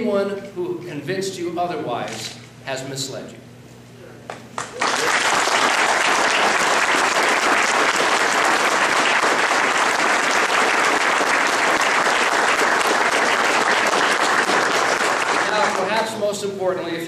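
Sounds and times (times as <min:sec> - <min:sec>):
crowd applauding: 0:04.6 - 0:16.0.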